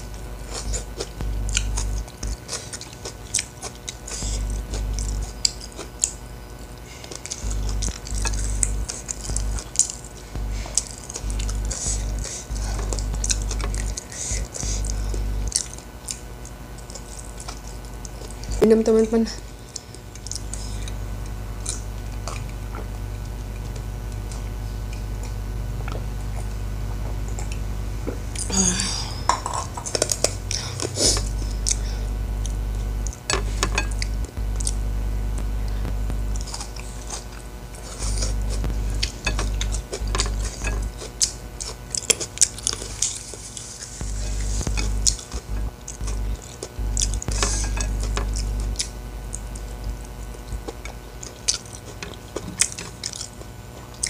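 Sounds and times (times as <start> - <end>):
steady low hum: 0.0 - 54.0
fingers working food on plate: 32.4 - 53.2
chewing and mouth clicks: 35.4 - 54.0.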